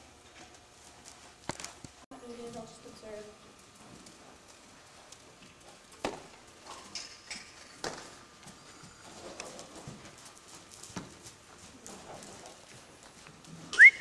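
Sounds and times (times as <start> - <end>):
horse hoofbeats on sand: 7.8 - 13.7.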